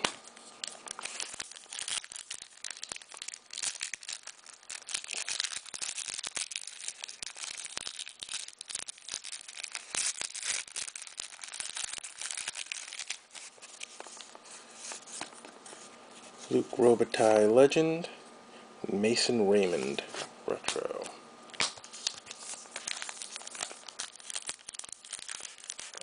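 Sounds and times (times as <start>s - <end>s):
crinkling: 0.0s - 16.6s, 19.6s - 26.0s
trading cards rustling: 0.0s - 16.9s, 19.5s - 26.0s
cards clicking against each other: 20.7s - 22.2s.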